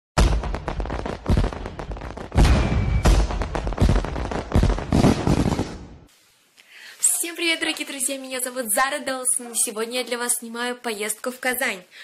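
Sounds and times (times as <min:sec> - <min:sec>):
fireworks banging and crackling: 0:00.2 - 0:06.1.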